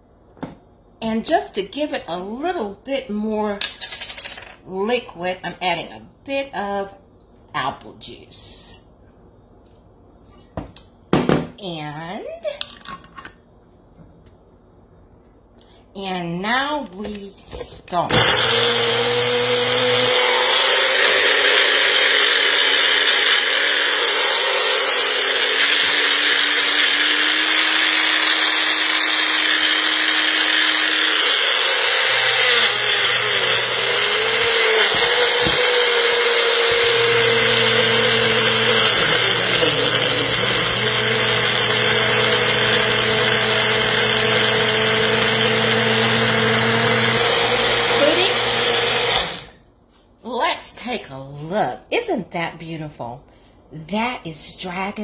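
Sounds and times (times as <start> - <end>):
blender motor running: 18.1 - 49.6.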